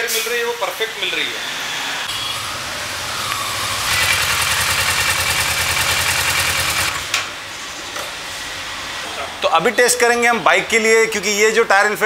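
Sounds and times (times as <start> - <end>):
motorcycle engine running: 2.1 - 7.1.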